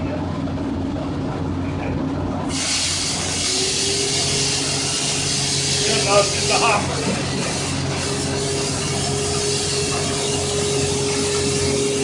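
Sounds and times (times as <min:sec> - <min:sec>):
steady hum: 0:00.0 - 0:12.0
dry ice blasting gun hissing: 0:02.5 - 0:12.0.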